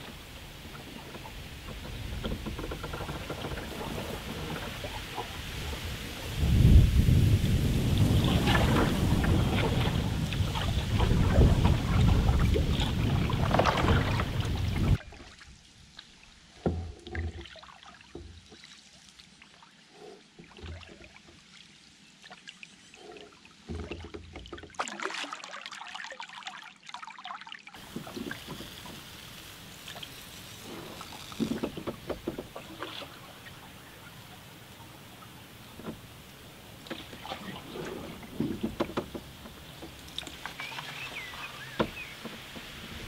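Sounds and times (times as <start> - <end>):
paddle pulling through water: 0.0 - 43.0
wind buffeting microphone: 3.3 - 15.0
water dripping off paddle: 22.2 - 43.0.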